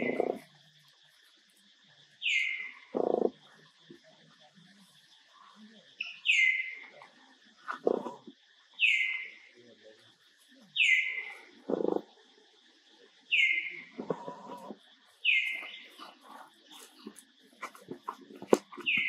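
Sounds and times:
low rough animal calls: 0:00.0 - 0:00.6, 0:02.5 - 0:03.7, 0:07.6 - 0:08.4, 0:11.0 - 0:12.2, 0:13.6 - 0:19.0.

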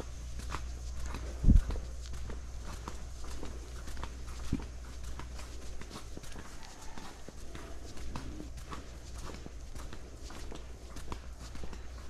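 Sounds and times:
footsteps on paved path: 0:00.0 - 0:12.0
low rumble: 0:01.0 - 0:02.4.

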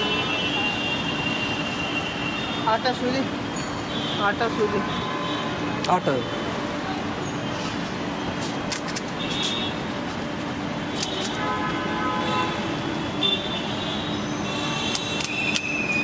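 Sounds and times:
street traffic: 0:00.0 - 0:16.0
sharp clicks: 0:14.8 - 0:16.0.

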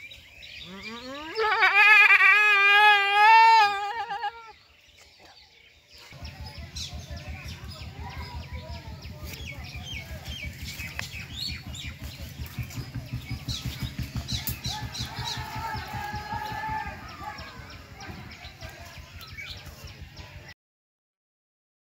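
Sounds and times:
small birds chirping: 0:00.0 - 0:01.8, 0:03.4 - 0:20.5
chicken calling: 0:00.6 - 0:04.6.

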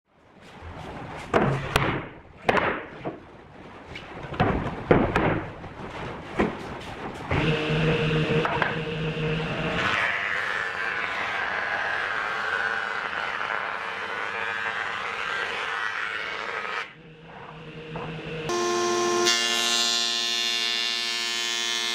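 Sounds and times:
wooden boards knocking: 0:00.9 - 0:03.2, 0:04.0 - 0:07.2
table saw motor humming: 0:07.4 - 0:21.9.

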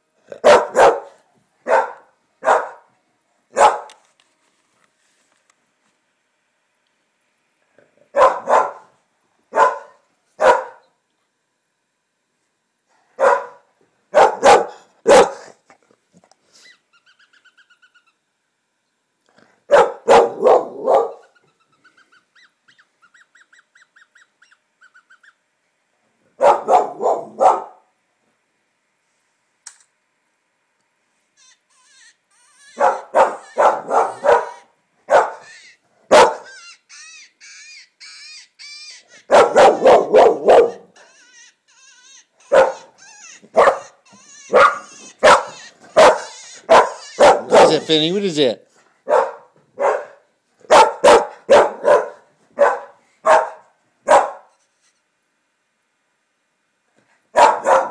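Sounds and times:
dog barking: 0:00.3 - 0:02.9, 0:03.5 - 0:04.0, 0:08.1 - 0:08.9, 0:09.5 - 0:10.9, 0:13.2 - 0:15.5, 0:19.7 - 0:21.3, 0:26.4 - 0:27.9, 0:32.8 - 0:35.4, 0:36.1 - 0:36.5, 0:39.3 - 0:40.9, 0:42.4 - 0:42.9, 0:43.5 - 0:48.0, 0:49.0 - 0:54.5, 0:57.3 - 0:57.9.

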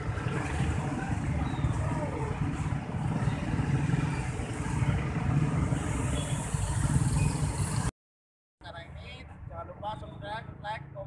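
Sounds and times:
motorcycle engines running: 0:00.0 - 0:07.9.

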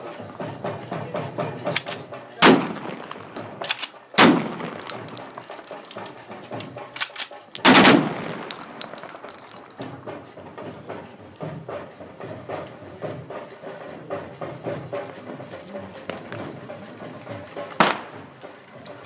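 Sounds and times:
sharp rifle clicks: 0:01.7 - 0:09.9
rifle shots echoing: 0:01.8 - 0:09.9, 0:17.8 - 0:18.3.

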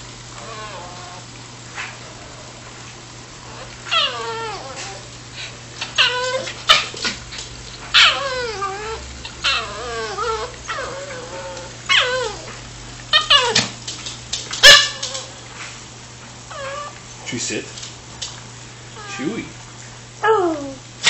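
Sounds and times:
puppy whining: 0:00.4 - 0:01.9, 0:03.4 - 0:13.8, 0:16.5 - 0:17.1, 0:19.0 - 0:19.5, 0:20.2 - 0:20.8.

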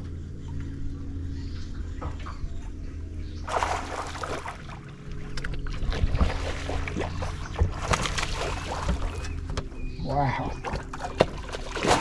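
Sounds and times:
low motor hum: 0:00.0 - 0:12.0
fish splashing at water surface: 0:03.5 - 0:04.8, 0:05.8 - 0:09.2, 0:10.7 - 0:12.0.

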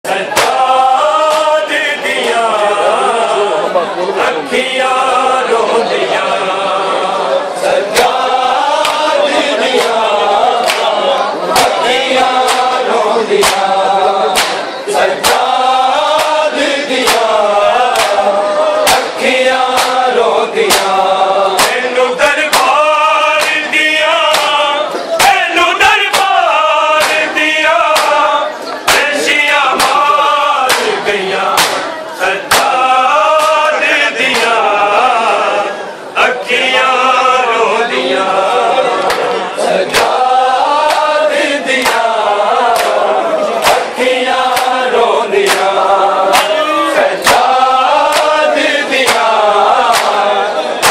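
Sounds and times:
men chanting in unison: 0:00.0 - 0:50.9.

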